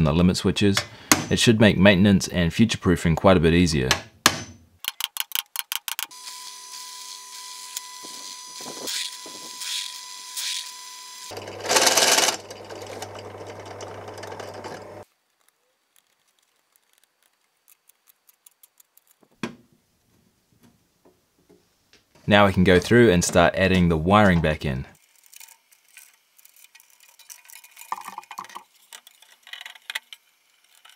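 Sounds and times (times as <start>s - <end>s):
drill press cutting metal: 6.1s - 15.0s.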